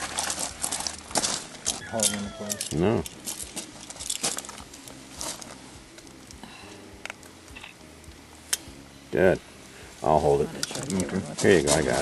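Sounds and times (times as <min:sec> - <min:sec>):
faint metal clicks and rustles: 0:00.0 - 0:06.4, 0:10.5 - 0:12.0.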